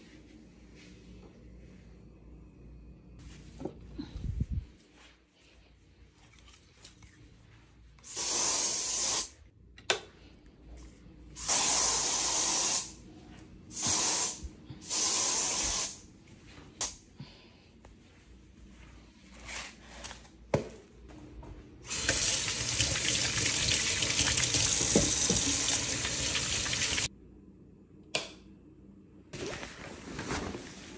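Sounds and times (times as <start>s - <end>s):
aerosol spray can hissing: 8.1s - 9.3s, 11.4s - 13.0s, 13.7s - 16.0s.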